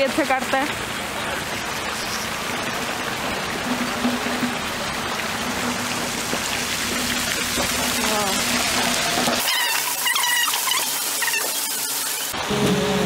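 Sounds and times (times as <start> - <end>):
fountain water rushing and splashing: 0.0 - 13.0.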